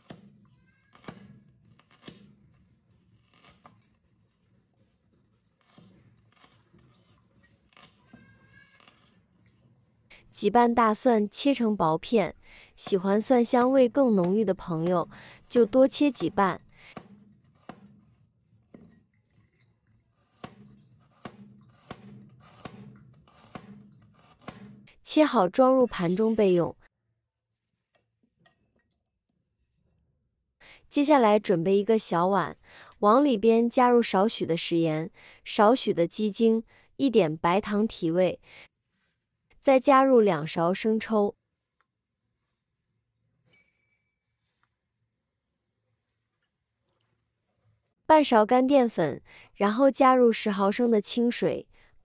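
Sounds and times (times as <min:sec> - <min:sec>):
cleaver chopping on cutting board: 0:20.4 - 0:24.8.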